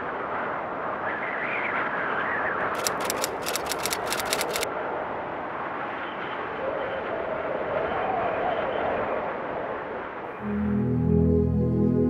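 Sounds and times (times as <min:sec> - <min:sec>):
rushing wind-like noise: 0:00.0 - 0:10.4
rapid sharp clicks: 0:02.7 - 0:04.7.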